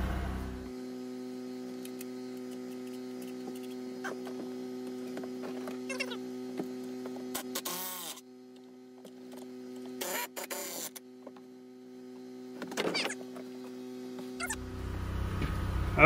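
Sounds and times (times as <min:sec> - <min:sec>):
steady electrical hum: 0:00.0 - 0:16.0
short squeaks: 0:12.7 - 0:13.4, 0:14.4 - 0:14.6.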